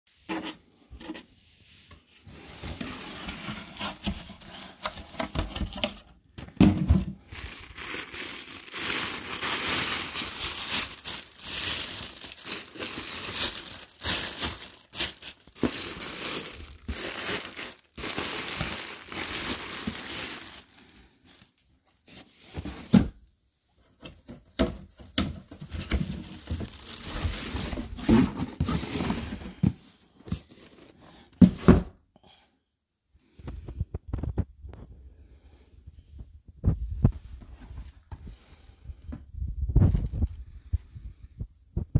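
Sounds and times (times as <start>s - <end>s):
paper and plastic packing rustling: 2.3s - 23.2s, 23.9s - 31.8s.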